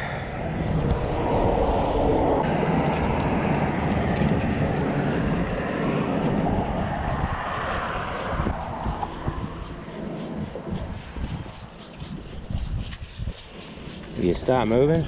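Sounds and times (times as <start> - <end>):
engine rumble passing by: 0.0 - 11.8.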